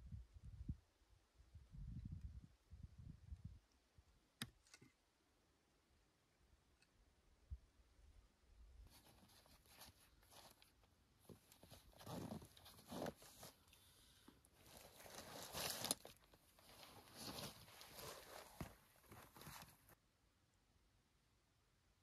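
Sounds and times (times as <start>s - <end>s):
fabric and plastic rustling: 8.9s - 13.7s, 14.6s - 20.0s.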